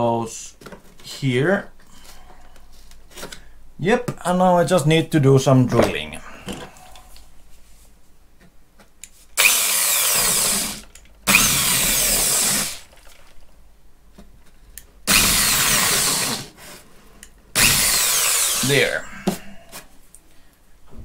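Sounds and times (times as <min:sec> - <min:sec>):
power drill boring polystyrene: 0:09.4 - 0:12.9, 0:15.1 - 0:16.6, 0:17.6 - 0:19.0.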